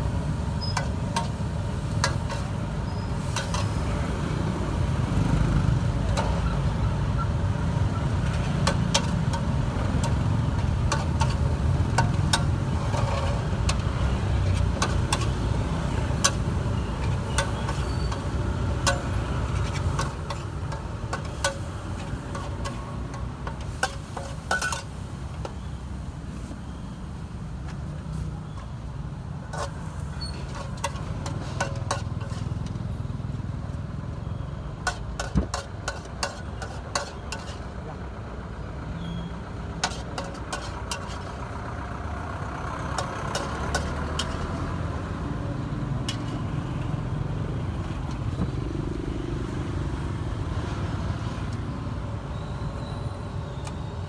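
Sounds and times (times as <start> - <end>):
street traffic rumble: 0.0 - 54.0
metal spatula clanking on wok: 8.3 - 13.9, 16.2 - 25.0, 29.5 - 32.8, 34.8 - 37.6, 39.8 - 41.3, 43.0 - 44.5.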